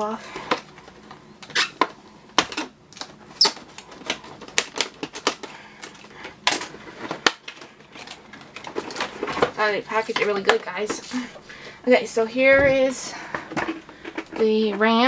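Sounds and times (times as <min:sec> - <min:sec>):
plastic packaging clicking and snapping: 0:00.5 - 0:10.6.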